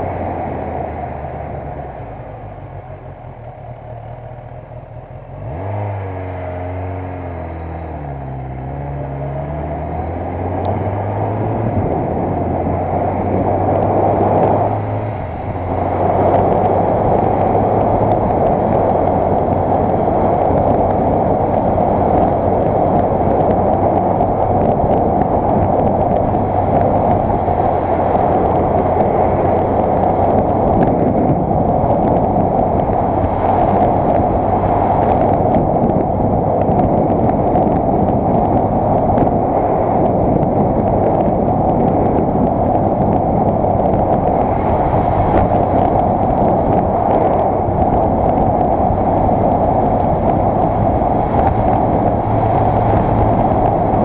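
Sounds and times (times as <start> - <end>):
wind rushing on microphone: 0.0 - 54.0
motorcycle engine upshifting: 5.3 - 54.0.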